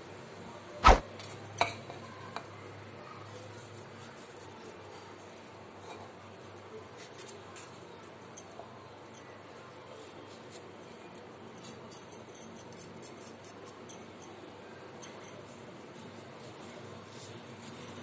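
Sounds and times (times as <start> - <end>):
knife scraping tomato: 12.6 - 13.8.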